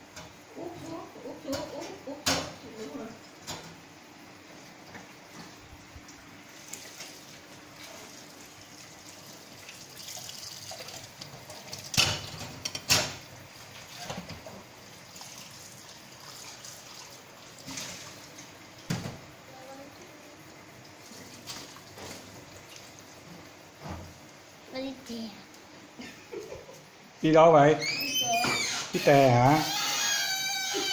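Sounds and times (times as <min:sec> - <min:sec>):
tap water running into sink: 0:07.8 - 0:13.0.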